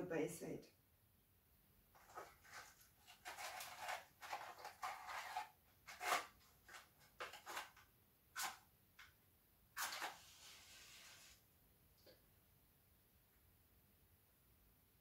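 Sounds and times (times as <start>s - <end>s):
matchbox rustling and sliding: 2.0s - 7.8s, 9.8s - 11.4s.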